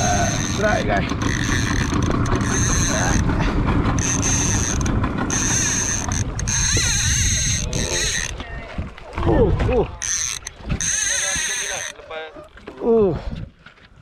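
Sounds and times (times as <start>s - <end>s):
fishing reel ratchet buzzing: 0.0s - 8.4s, 10.0s - 12.0s
boat motor hum: 0.0s - 14.0s
wind on microphone: 4.4s - 11.0s.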